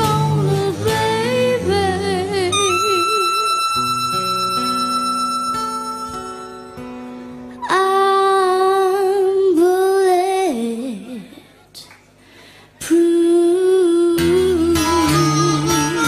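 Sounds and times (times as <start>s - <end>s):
woman humming held notes: 0.0s - 6.6s, 12.9s - 16.0s.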